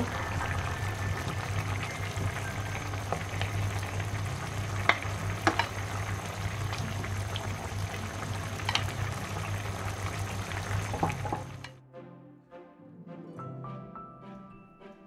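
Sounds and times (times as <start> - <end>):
curry simmering and sizzling: 0.0 - 11.7
low hum: 0.0 - 11.7
spatula knocking against pan: 4.8 - 5.8.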